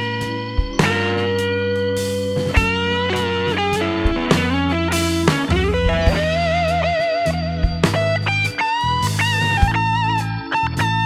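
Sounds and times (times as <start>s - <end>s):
bass line: 0.0s - 11.0s
guitar melody with bending notes: 0.0s - 11.0s
drum hits: 0.6s - 1.5s, 2.2s - 7.0s.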